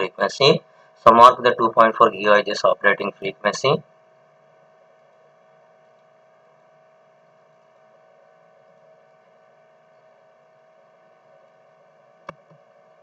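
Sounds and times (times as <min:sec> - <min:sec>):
low hiss: 0:00.0 - 0:03.8
steady mid-pitched tone: 0:00.0 - 0:03.9
faint electrical hum: 0:00.0 - 0:13.0.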